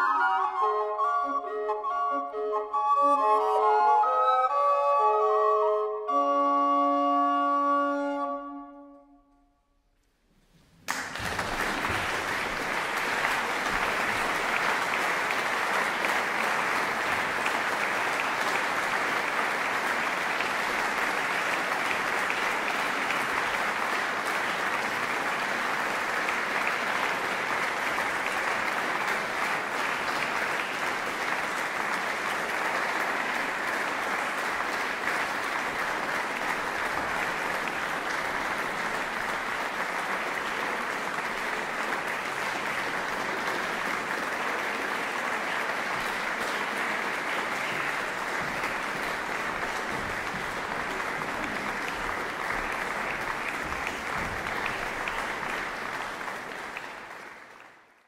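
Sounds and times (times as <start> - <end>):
recorder ensemble chord: 0.0 - 9.4
audience applause: 10.8 - 58.0.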